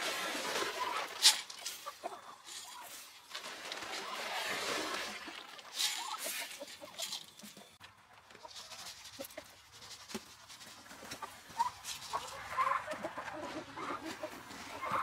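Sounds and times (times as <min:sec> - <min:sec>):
chickens clucking: 0:00.0 - 0:15.0
feed pouring from paper sack: 0:02.5 - 0:07.2.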